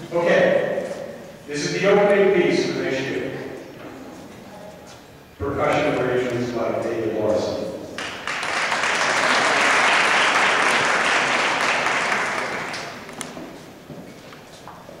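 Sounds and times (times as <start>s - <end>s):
audience applauding: 8.0s - 13.2s.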